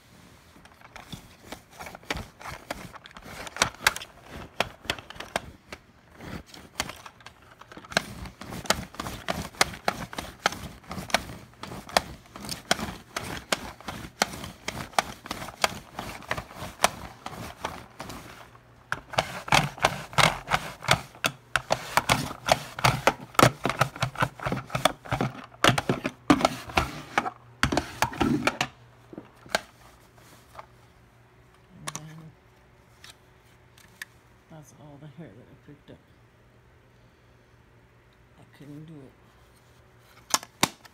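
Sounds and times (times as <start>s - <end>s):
pet hair roller clicking over fabric: 0.5s - 28.7s.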